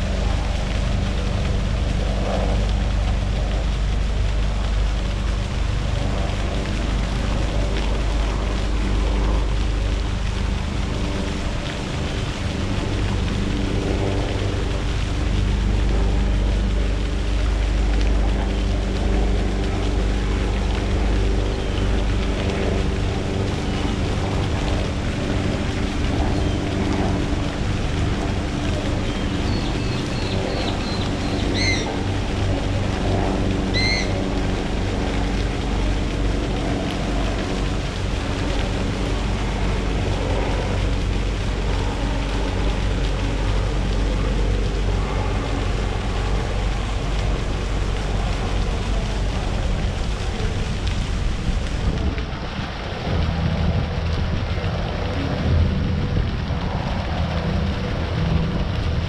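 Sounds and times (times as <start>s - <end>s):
constant low hum: 0.0s - 59.0s
outdoor rumble and hiss: 0.0s - 59.0s
bird chirps: 33.7s - 34.1s.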